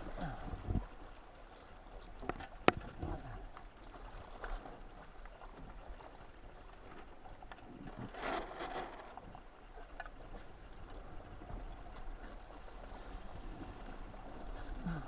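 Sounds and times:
water splashing against hull: 0.0s - 15.0s
light knocks from rigging: 6.9s - 10.5s.

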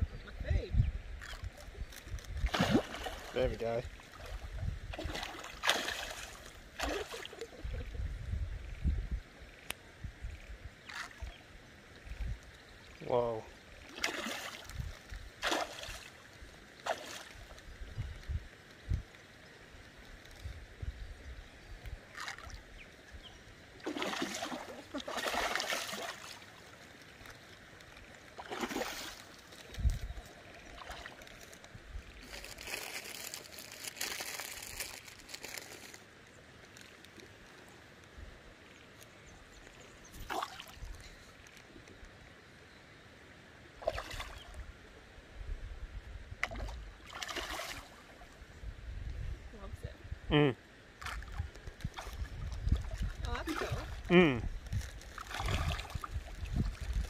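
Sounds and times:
fish splashing in water: 2.4s - 3.4s, 4.0s - 7.6s, 13.8s - 17.5s, 23.8s - 31.6s, 40.2s - 41.0s, 43.8s - 44.6s, 46.4s - 48.3s, 54.9s - 57.0s.

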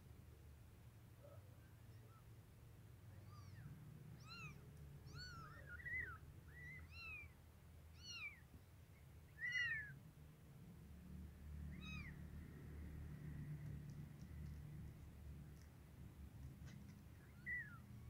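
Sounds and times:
newborn kittens mewing: 3.3s - 8.4s, 9.4s - 9.9s, 11.7s - 12.2s.

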